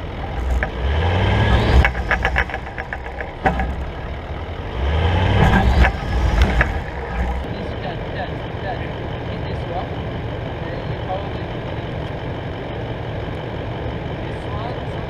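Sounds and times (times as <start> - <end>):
stones knocking and clattering: 0.0 - 4.4, 5.3 - 7.5
engine revving hard: 0.0 - 8.0.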